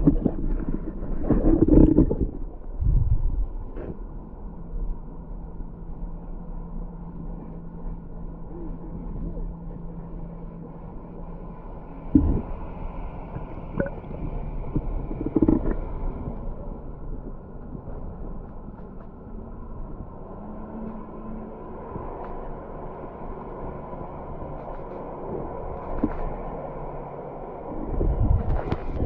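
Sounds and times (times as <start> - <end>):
underwater water sloshing: 0.0 - 4.1, 12.0 - 19.2
steady low hum: 0.0 - 29.0.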